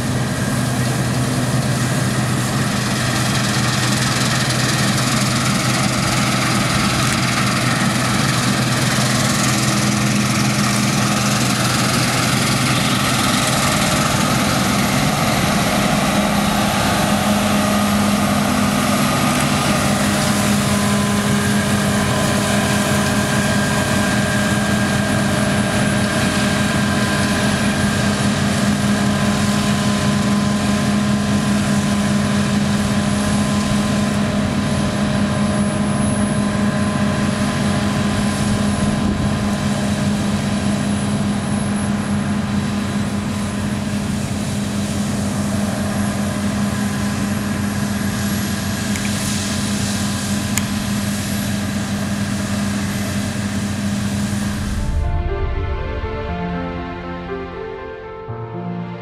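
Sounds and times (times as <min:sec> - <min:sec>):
combine harvester drone: 0:00.0 - 0:59.0.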